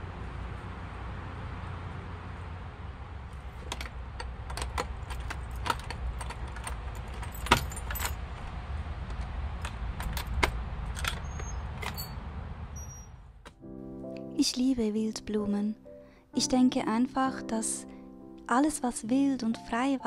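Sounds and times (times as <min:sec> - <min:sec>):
low steady rumble: 0:00.0 - 0:13.5
keys jangling in metal lock: 0:03.6 - 0:08.4, 0:10.0 - 0:12.2
wooden door opening: 0:03.6 - 0:08.5, 0:09.2 - 0:12.2.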